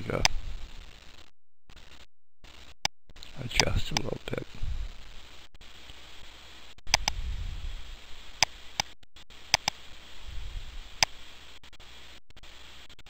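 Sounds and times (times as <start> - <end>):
computer mouse button clicks: 9.6 - 9.8.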